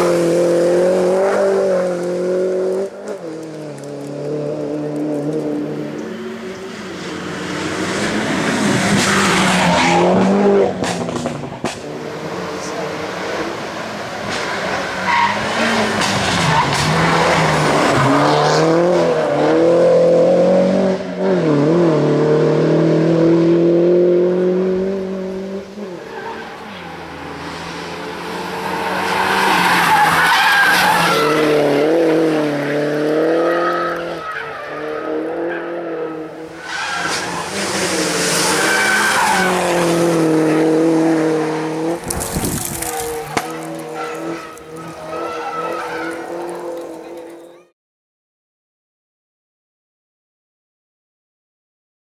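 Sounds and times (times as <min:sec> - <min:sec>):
car engine revving hard: 0:00.0 - 0:26.0, 0:27.1 - 0:47.1
tyres squealing: 0:28.7 - 0:31.6, 0:42.0 - 0:47.2.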